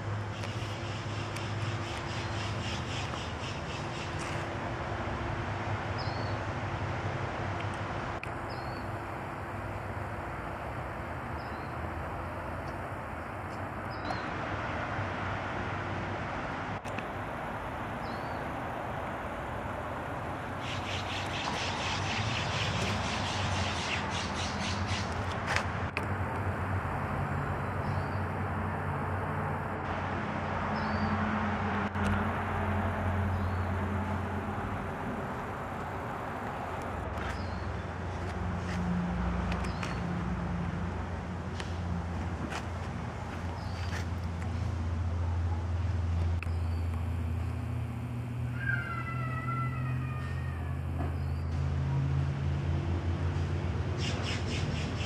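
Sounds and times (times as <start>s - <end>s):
distant traffic hum: 0.0s - 55.0s
small bird chirping: 20.6s - 25.2s.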